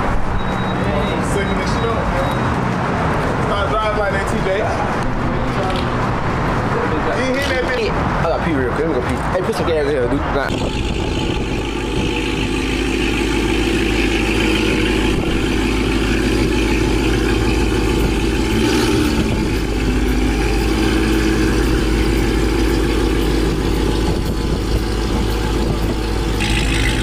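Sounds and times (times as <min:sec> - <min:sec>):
car engine idling: 0:10.5 - 0:27.0.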